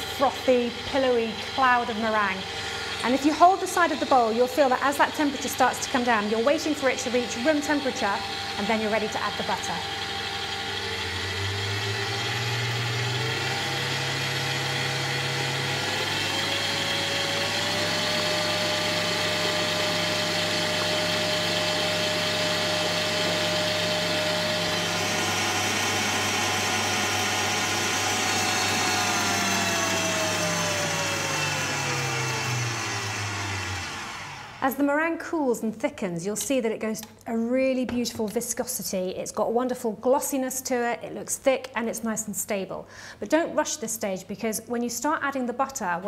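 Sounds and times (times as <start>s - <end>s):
stand mixer motor whine: 0.0s - 34.7s.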